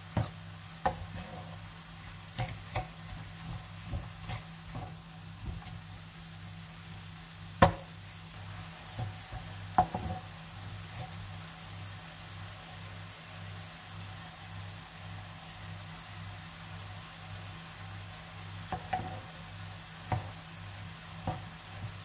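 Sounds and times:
meat and onion sizzling in pan: 0.0s - 22.0s
spatula knocking against pan: 7.6s - 7.9s, 9.0s - 10.2s.

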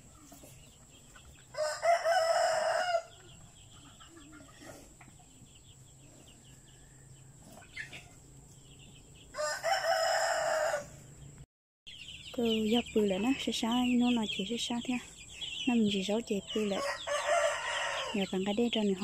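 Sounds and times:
rooster crowing: 1.5s - 3.2s, 9.3s - 11.1s, 16.5s - 18.2s.

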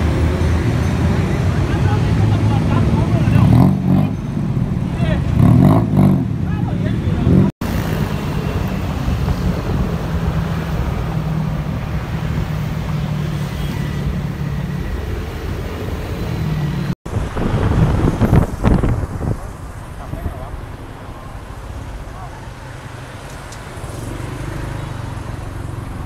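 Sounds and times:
motorcycle engine drone: 0.0s - 26.0s
traffic jam noise: 0.0s - 26.0s
wind on microphone: 7.0s - 13.0s, 14.1s - 24.5s.

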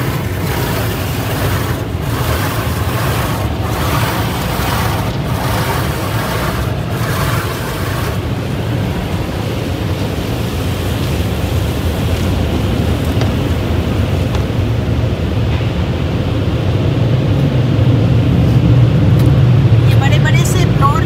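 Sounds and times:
water spraying against car: 0.0s - 14.7s
low rumble of wash machinery: 0.0s - 21.0s.

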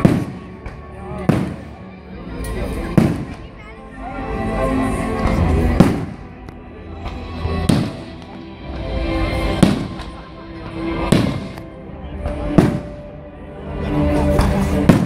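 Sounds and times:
fireworks bursting: 0.0s - 1.8s, 2.9s - 3.4s, 5.3s - 6.3s, 7.6s - 8.3s, 9.4s - 10.2s, 11.0s - 11.6s, 12.5s - 13.1s, 14.8s - 15.0s
music playing: 0.0s - 15.0s.

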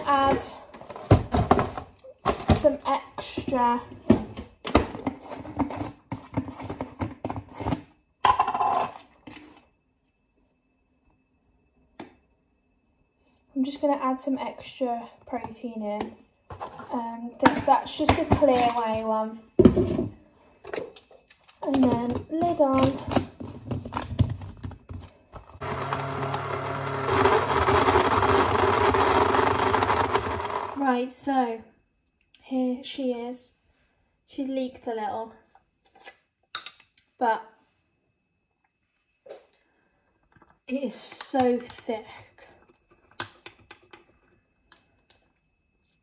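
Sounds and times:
blender motor running: 25.6s - 30.8s.

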